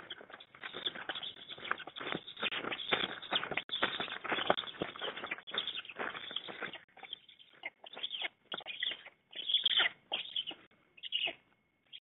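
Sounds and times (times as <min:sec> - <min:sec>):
wings flapping: 0:00.0 - 0:06.8
hoarse begging calls: 0:00.0 - 0:11.4.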